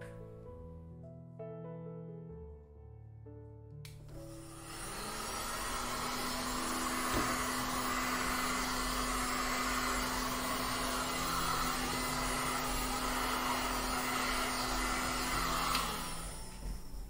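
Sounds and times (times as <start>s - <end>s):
heat gun blowing air: 4.1s - 17.0s.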